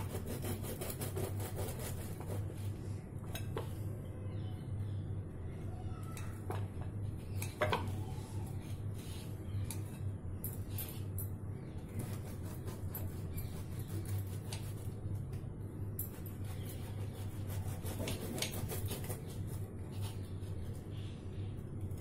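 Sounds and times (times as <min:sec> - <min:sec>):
knife cutting bread on plate: 0:00.0 - 0:02.6, 0:12.0 - 0:14.9, 0:16.1 - 0:20.6
steady low hum: 0:00.0 - 0:22.0.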